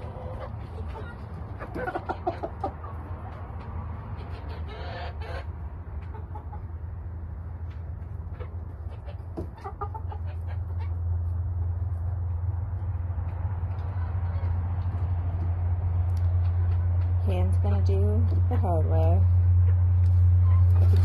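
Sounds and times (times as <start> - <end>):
chickens clucking: 0.0 - 17.2, 19.4 - 21.0
steady low hum: 10.6 - 21.0.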